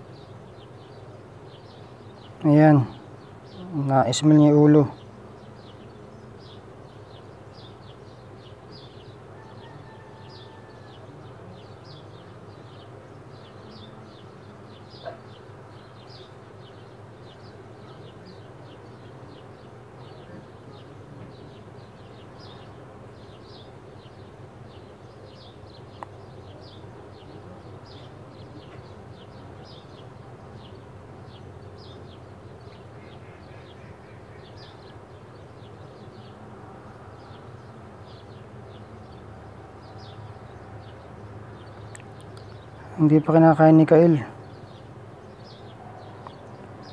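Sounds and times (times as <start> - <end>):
faint clicks: 41.8 - 42.5.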